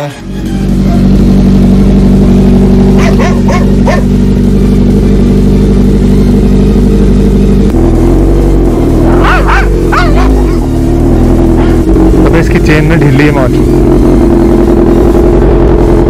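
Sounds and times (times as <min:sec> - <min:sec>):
motorcycle engine idling: 0:00.2 - 0:16.0
dog barking: 0:03.0 - 0:04.1, 0:09.1 - 0:10.8.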